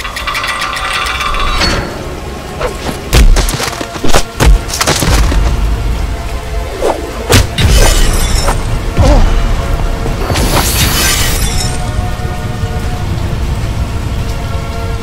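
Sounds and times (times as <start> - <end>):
dramatic film score: 0.0 - 15.0.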